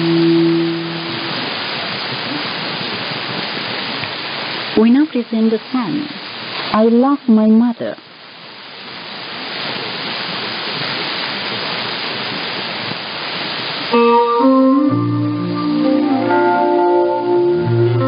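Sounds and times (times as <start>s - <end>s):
shortwave radio hiss: 0.0s - 18.0s.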